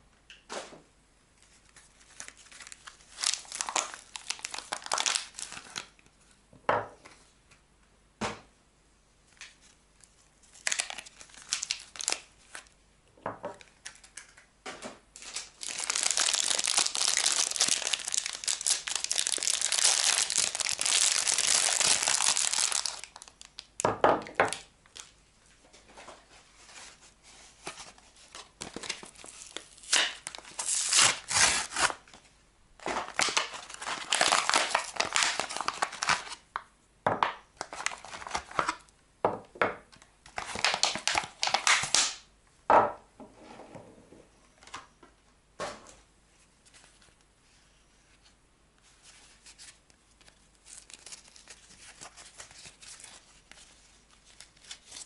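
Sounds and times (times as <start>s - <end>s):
soap wrappers crinkling: 1.5s - 6.0s, 9.4s - 12.8s, 15.2s - 23.8s, 27.6s - 32.2s, 32.8s - 36.4s, 37.6s - 38.9s, 39.9s - 42.3s, 49.3s - 55.0s.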